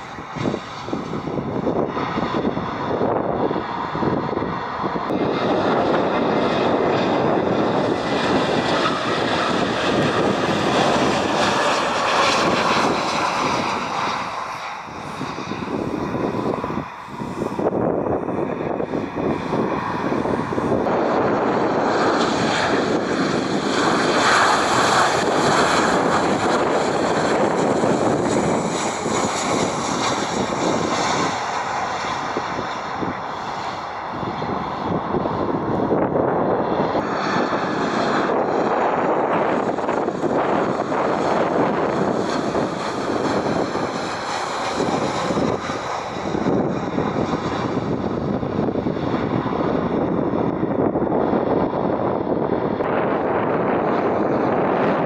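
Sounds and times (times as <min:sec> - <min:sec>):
jet engines roaring: 0:00.0 - 0:55.0.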